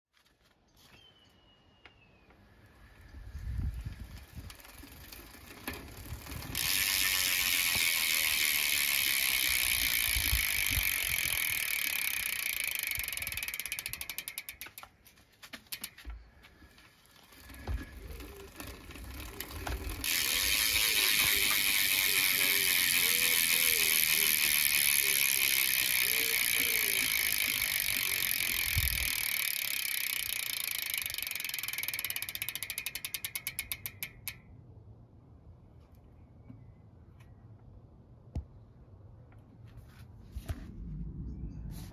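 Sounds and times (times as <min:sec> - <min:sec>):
bicycle hub ratcheting clicks: 0:03.8 - 0:15.0, 0:15.6 - 0:16.1, 0:17.0 - 0:34.6.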